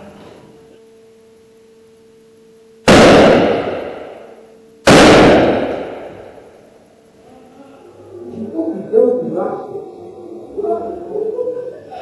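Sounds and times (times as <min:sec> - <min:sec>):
loud stun gun shots: 0:02.9 - 0:06.6.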